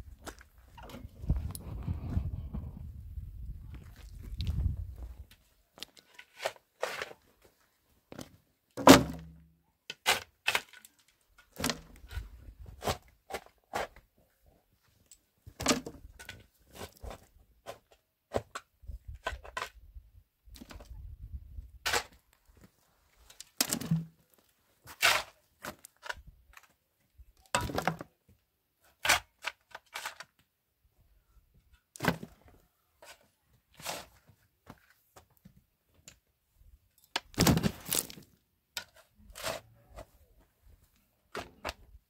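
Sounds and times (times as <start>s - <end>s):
shovel scraping into stony soil: 6.0s - 7.2s, 24.8s - 26.1s, 33.0s - 34.3s, 38.8s - 40.1s.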